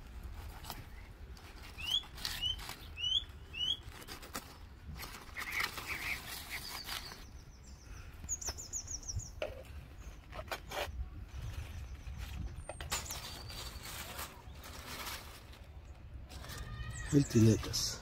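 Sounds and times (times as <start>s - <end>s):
small birds chirping: 0.4s - 18.0s
bird trill: 1.8s - 4.1s.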